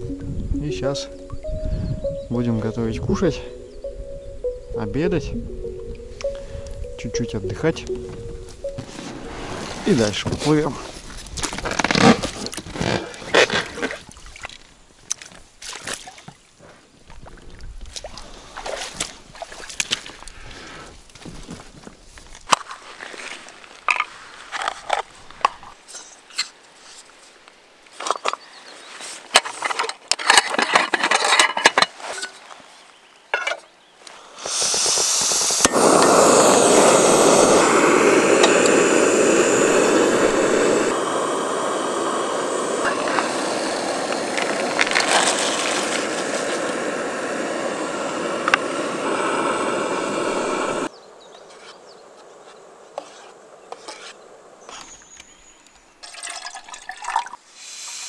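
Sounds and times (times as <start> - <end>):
camping gear clicks and knocks: 21.1 - 27.0, 27.9 - 28.5, 29.1 - 32.6
water pouring: 43.1 - 46.8, 56.0 - 57.4.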